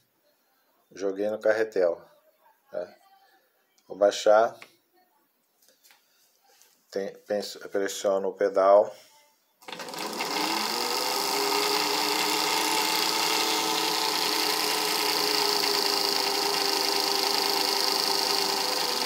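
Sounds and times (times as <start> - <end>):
sewing machine motor running: 9.6 - 19.0.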